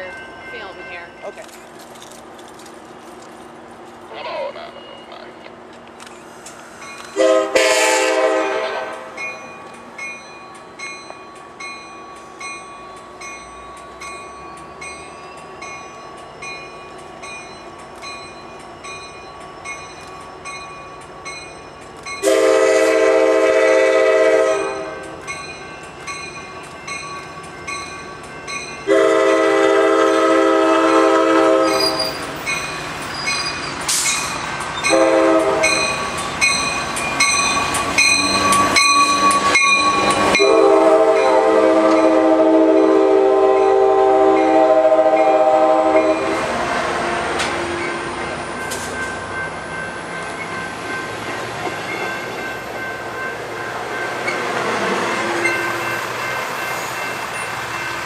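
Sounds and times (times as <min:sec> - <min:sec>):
train rumble: 0:00.0 - 0:58.0
locomotive air horn blasts: 0:07.1 - 0:09.2, 0:22.2 - 0:25.1, 0:28.9 - 0:32.1, 0:34.9 - 0:35.8, 0:40.4 - 0:46.4.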